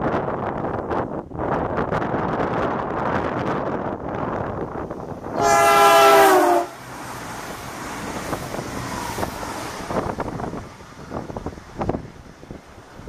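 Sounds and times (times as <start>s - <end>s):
diesel train passing: 0.0s - 13.0s
train horn blast: 5.3s - 6.8s.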